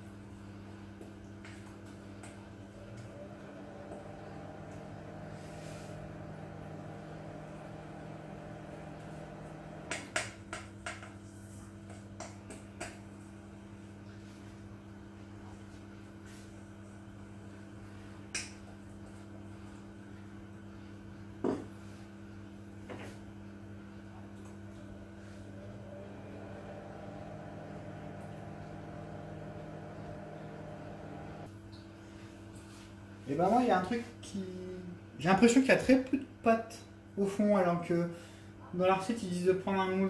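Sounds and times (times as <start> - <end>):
steady low hum: 0.0 - 10.6, 13.1 - 33.3.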